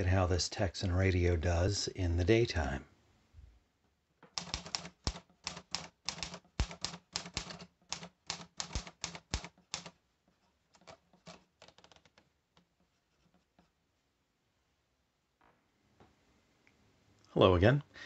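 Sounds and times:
typewriter keys clacking: 4.3 - 10.0, 10.7 - 12.3.

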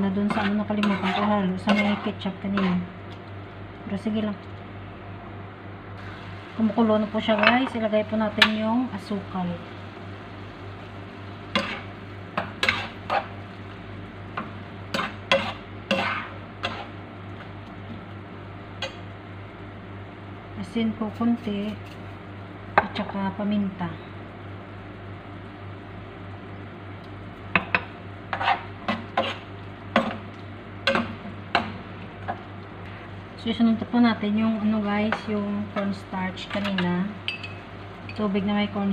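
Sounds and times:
sauce boiling: 0.0 - 38.9
spoon scraping a pan: 0.2 - 2.9, 11.5 - 13.4, 14.4 - 17.0, 27.6 - 30.2.

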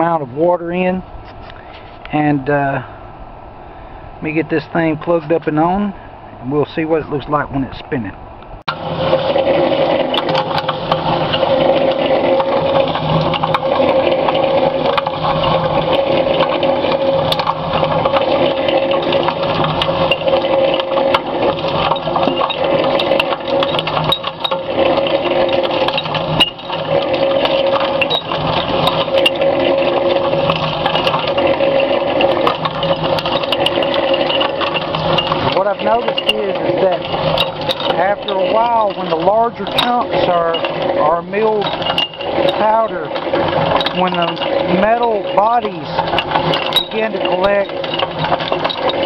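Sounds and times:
cement mixer drive humming: 0.0 - 49.0
steel balls clattering in drum: 8.7 - 49.0.

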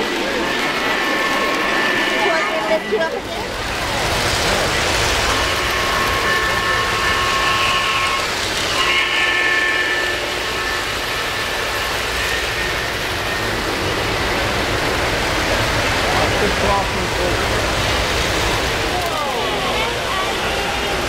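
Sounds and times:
model trains rolling on track: 0.0 - 21.0
model steam locomotive whistle: 0.2 - 3.2, 4.8 - 14.2, 19.8 - 21.0.

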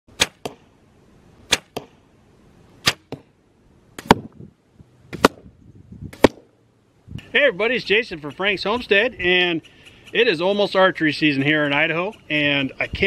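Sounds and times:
arrow striking target: 0.1 - 0.7, 1.5 - 2.0, 2.8 - 3.3, 4.0 - 4.4, 5.1 - 5.5, 6.1 - 6.5.

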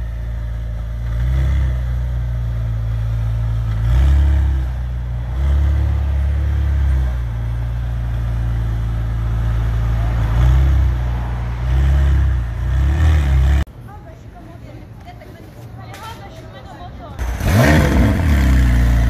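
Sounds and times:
car engine idling deep rumble: 0.0 - 13.7.

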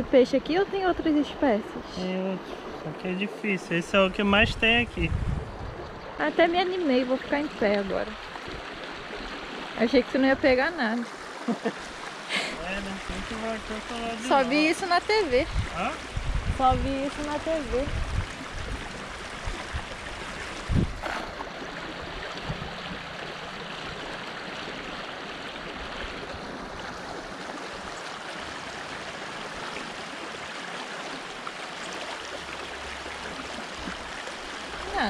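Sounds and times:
rocky stream running: 5.6 - 35.0
net splashing into water: 18.6 - 23.0.

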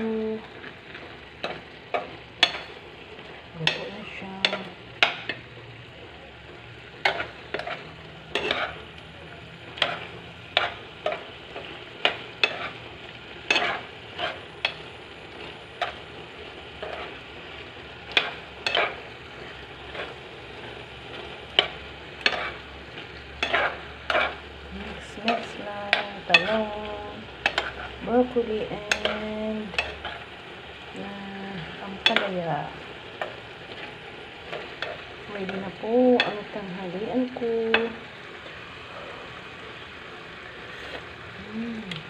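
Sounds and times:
vegetables sizzling in a frying pan: 0.0 - 42.0
spoon scraping a pan: 0.5 - 2.8, 7.0 - 8.9, 9.7 - 12.8, 13.4 - 16.0, 18.1 - 30.2.

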